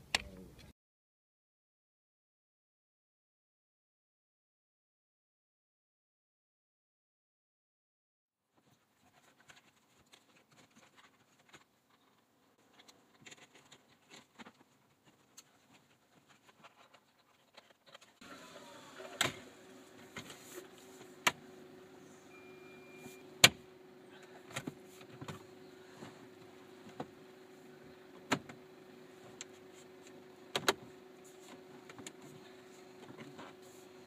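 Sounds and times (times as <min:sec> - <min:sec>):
steady hum: 0:18.2 - 0:34.0.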